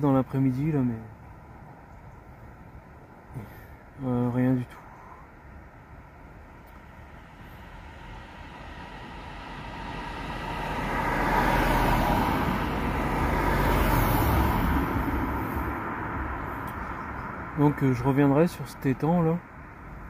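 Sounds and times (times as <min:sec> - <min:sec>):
car driving past: 0:06.8 - 0:17.8.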